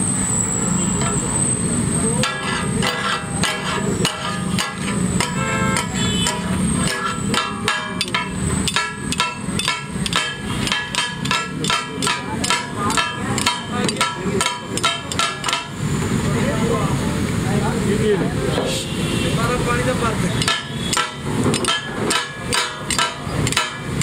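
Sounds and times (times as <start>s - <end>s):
metal spatulas clanging on griddle: 2.2s - 15.8s, 20.4s - 24.0s.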